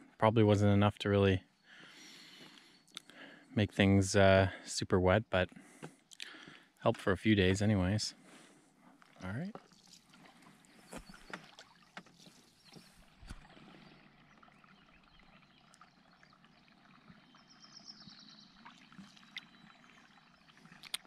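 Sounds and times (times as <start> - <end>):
paddle strokes in water: 8.2 - 15.8.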